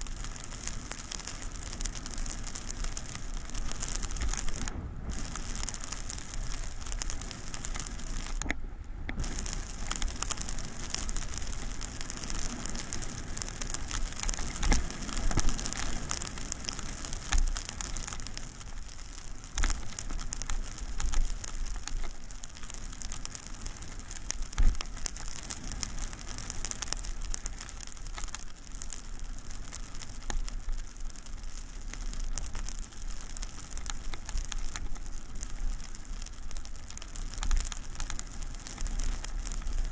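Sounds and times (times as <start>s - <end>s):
skis hissing over snow: 0.0s - 8.4s, 9.2s - 18.6s
wind rumble on microphone: 1.6s - 18.5s.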